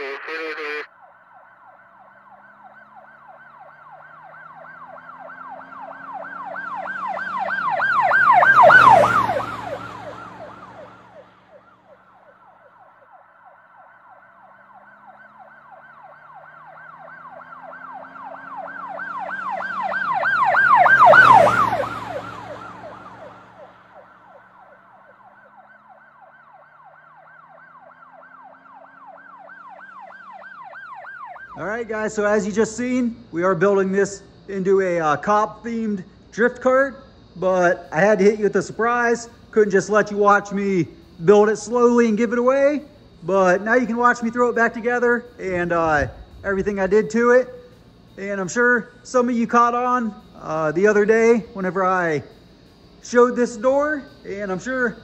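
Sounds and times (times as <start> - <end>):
police siren yelping: 0.0 - 55.0
vehicle rushing past: 1.3 - 12.5, 14.0 - 26.3, 43.2 - 48.3.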